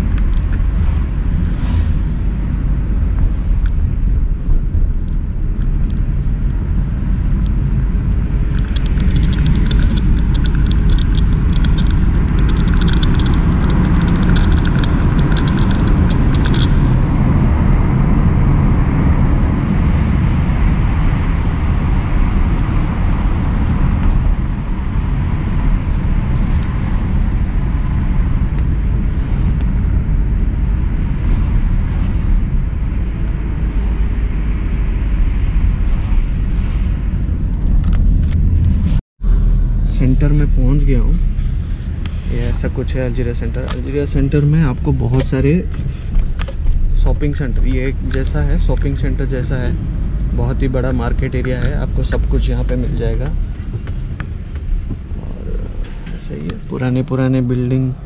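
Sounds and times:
car engine and tyres rumbling: 0.0s - 58.0s
sharp crackling ticks: 7.4s - 16.8s, 50.2s - 54.8s.

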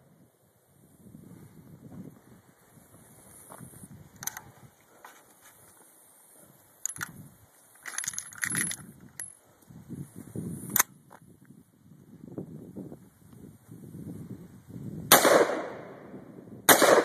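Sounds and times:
rifle action clicking and clacking: 4.2s - 4.5s, 6.8s - 7.2s, 7.8s - 9.4s.

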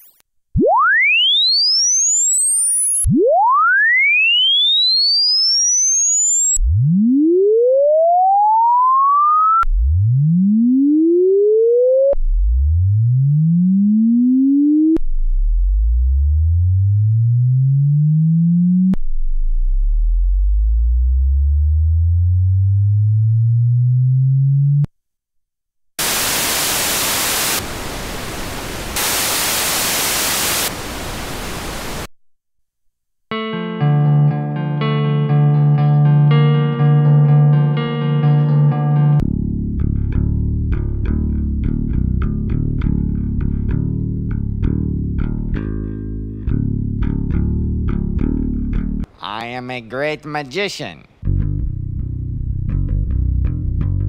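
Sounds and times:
rising sine tone sweep: 0.6s - 24.9s
white and pink noise hiss: 26.0s - 32.1s.

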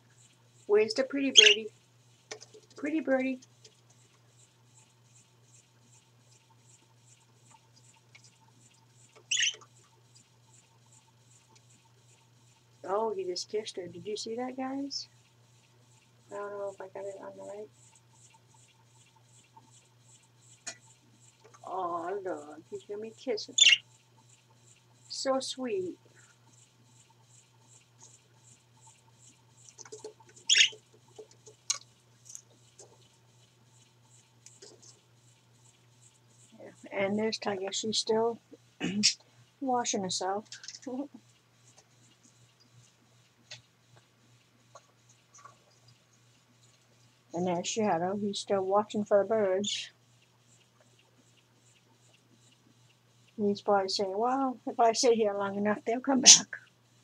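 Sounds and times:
faint steady hum: 0.0s - 57.0s
budgerigar high chirp: 1.4s - 1.6s, 9.3s - 9.6s, 23.6s - 23.8s, 30.5s - 30.8s
small clicks and taps: 2.2s - 2.8s, 29.6s - 33.1s, 43.4s - 44.1s.

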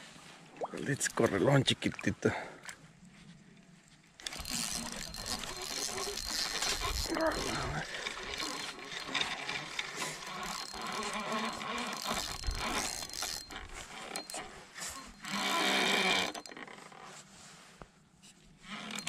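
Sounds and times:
fishing reel whirring: 4.2s - 17.1s, 18.7s - 19.0s.

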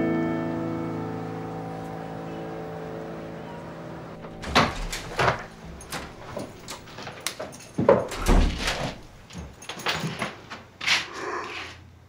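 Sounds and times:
door thud: 4.2s - 10.1s
keys unlocking a door: 4.2s - 11.0s.

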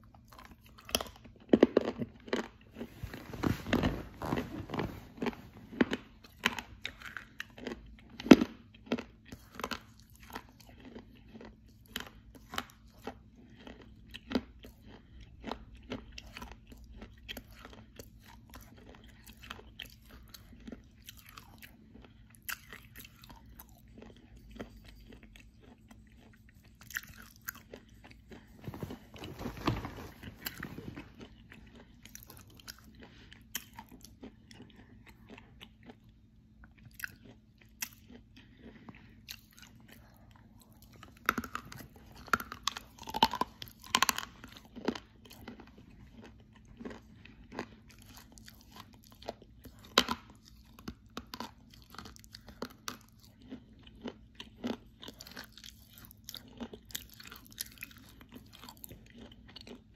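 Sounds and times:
chewing crunches: 0.0s - 59.9s.

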